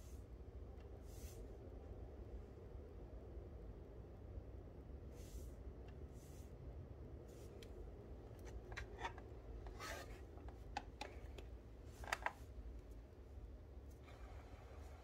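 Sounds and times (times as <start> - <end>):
low steady hum: 0.0 - 15.0
handling noises on plastic: 7.3 - 13.0.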